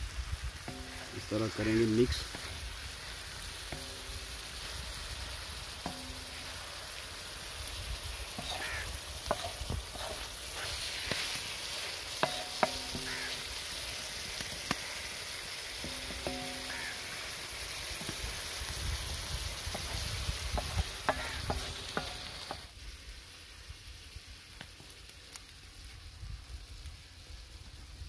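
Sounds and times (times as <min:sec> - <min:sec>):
chicken sizzling on iron griddle: 0:00.0 - 0:28.0
spatula scraping on metal: 0:08.4 - 0:13.4.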